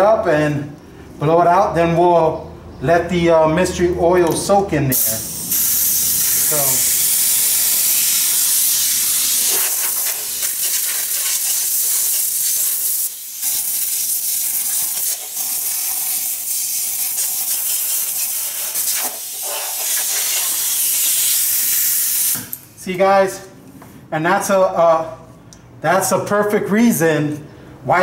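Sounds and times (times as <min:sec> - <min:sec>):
compressed air blow gun hissing: 0:04.9 - 0:22.5.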